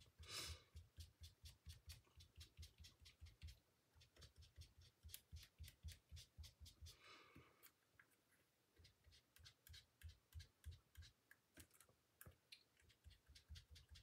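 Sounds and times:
soft breath: 6.9 - 7.8.

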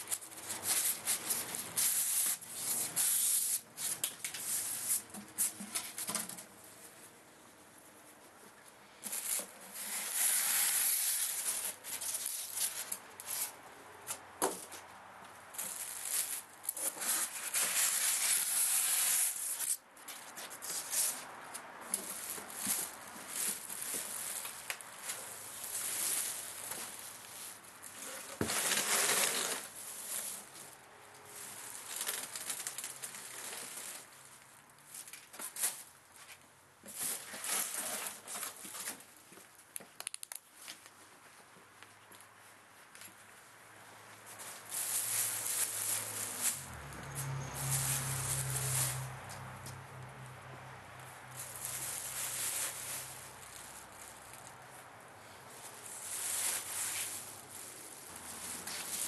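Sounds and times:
plastic bag rustling and crinkling: 21.8 - 39.2, 44.3 - 49.5, 51.3 - 59.0.

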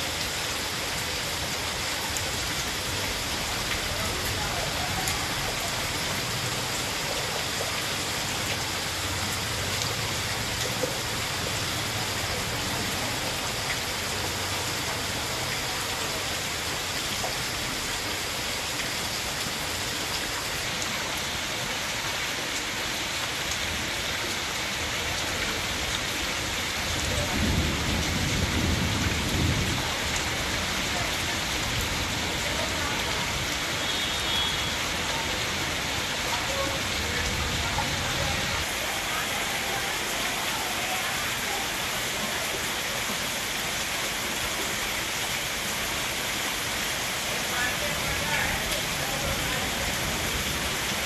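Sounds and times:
heavy rain on a flooded street: 0.0 - 51.0.

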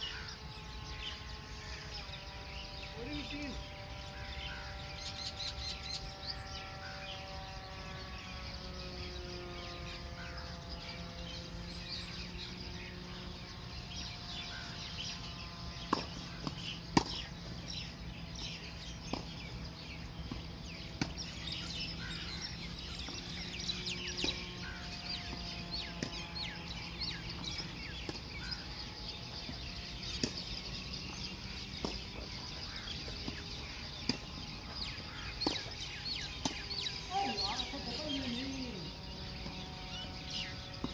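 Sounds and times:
birds chirping: 0.0 - 40.9
faint droning tone: 0.0 - 40.9
tennis balls struck by rackets: 15.8 - 38.4, 39.3 - 40.9.

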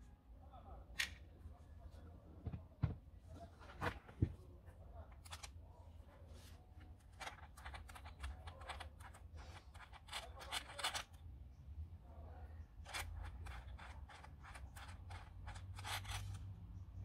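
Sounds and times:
small metal clicks and scrapes: 5.1 - 5.6, 6.8 - 11.2, 12.8 - 16.8.

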